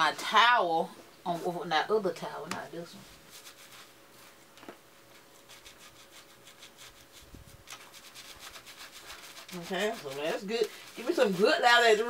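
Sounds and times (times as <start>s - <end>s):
fingers rubbing hair: 3.3s - 4.4s, 5.1s - 12.0s.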